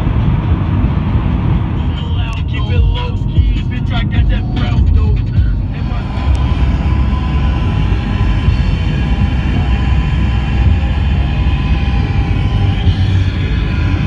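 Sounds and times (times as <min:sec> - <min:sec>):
car driving at highway speed: 0:00.0 - 0:14.0.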